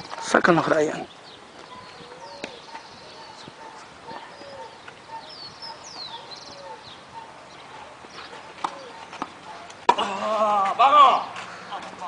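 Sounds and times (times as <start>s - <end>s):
birds chirping: 0.0s - 12.0s
tennis ball hit by rackets: 8.6s - 10.2s.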